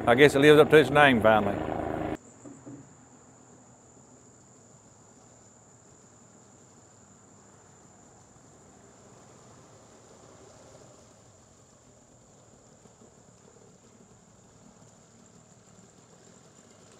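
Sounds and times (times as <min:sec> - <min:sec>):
outboard motor rumble: 0:00.0 - 0:02.2
insect chorus: 0:02.2 - 0:16.9.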